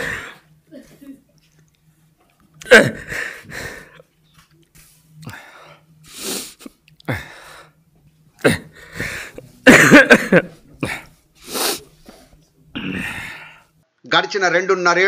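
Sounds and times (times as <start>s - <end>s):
man sobbing: 2.6s - 4.0s, 8.4s - 11.1s.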